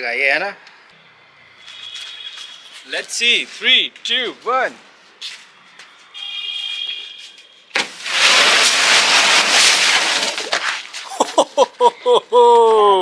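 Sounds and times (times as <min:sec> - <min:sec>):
firecracker hissing: 0:07.7 - 0:11.2.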